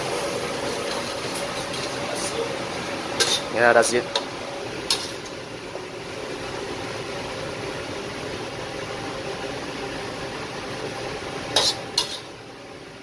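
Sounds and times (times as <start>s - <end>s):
extractor fan rumbling: 0.0s - 13.0s
ladle spooning from a wok: 0.5s - 3.5s, 4.1s - 5.4s, 11.5s - 12.4s.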